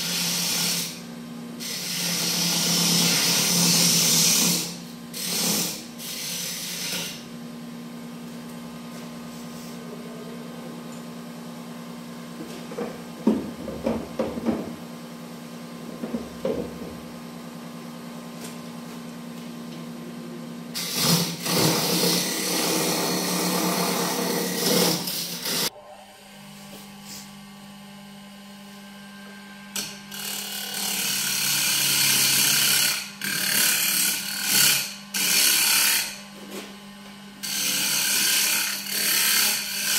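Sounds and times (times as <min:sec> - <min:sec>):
hissy wood cutting: 0:00.0 - 0:07.2, 0:20.7 - 0:25.8.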